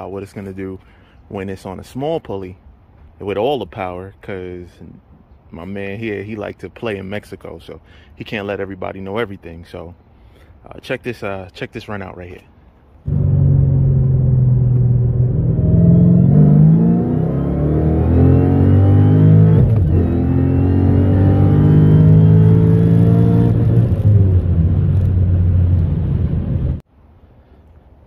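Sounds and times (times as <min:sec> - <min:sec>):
supercharger whine: 0:13.0 - 0:26.8
car engine at full throttle: 0:13.1 - 0:26.8
gear upshift: 0:13.1 - 0:26.8.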